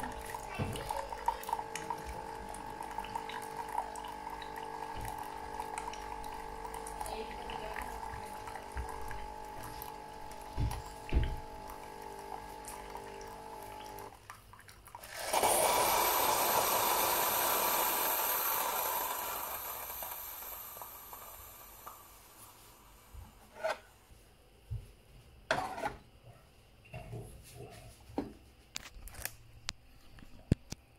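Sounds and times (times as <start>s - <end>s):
coffee machine pump humming: 0.0s - 14.3s, 15.0s - 23.8s.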